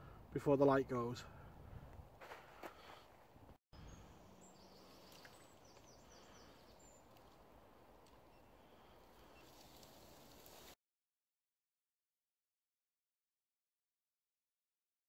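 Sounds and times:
faint outdoor ambience: 0.0s - 10.8s
bird chirping: 3.8s - 7.2s, 8.1s - 9.9s.

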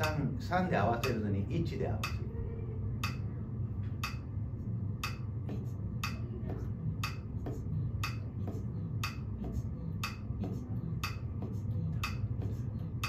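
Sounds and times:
metronome clicking: 0.0s - 0.2s, 1.0s - 1.2s, 3.0s - 3.2s, 4.0s - 4.2s, 5.0s - 5.3s, 6.0s - 6.3s, 7.0s - 7.3s, 8.0s - 8.3s, 9.0s - 9.2s, 10.0s - 10.3s, 11.0s - 11.3s, 12.0s - 12.4s.

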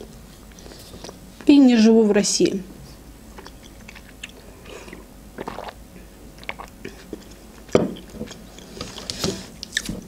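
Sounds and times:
sticky chewing and lip smacks: 3.4s - 5.8s.

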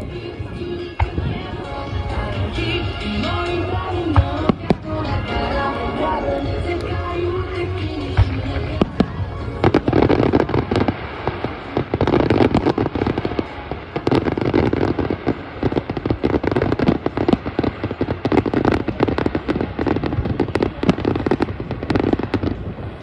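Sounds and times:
fireworks bursting: 0.0s - 23.0s
fireworks crackling: 0.0s - 23.0s.

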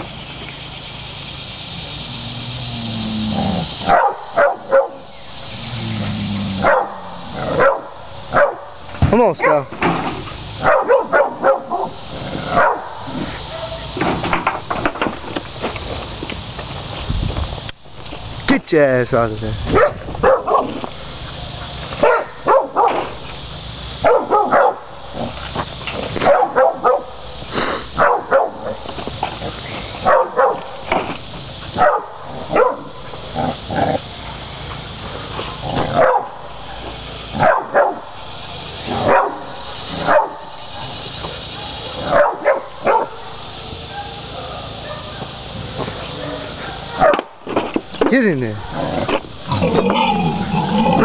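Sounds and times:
dogs barking: 3.6s - 5.1s, 6.5s - 8.8s, 9.4s - 9.7s, 10.6s - 14.0s, 19.7s - 23.1s, 24.0s - 25.4s, 26.1s - 27.2s, 27.9s - 28.8s, 30.0s - 30.8s, 31.7s - 34.1s, 35.6s - 38.2s, 38.9s - 47.3s.

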